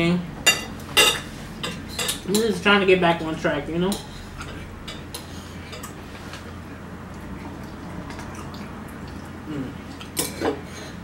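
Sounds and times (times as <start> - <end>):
steady low hum: 0.0 - 11.0
wet mouth noises: 7.1 - 10.6.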